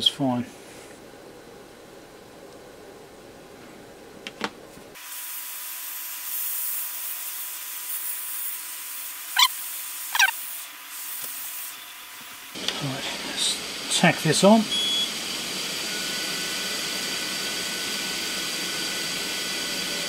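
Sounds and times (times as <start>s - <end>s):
steady hiss: 5.0s - 14.7s
short sharp chirps: 9.4s - 10.4s.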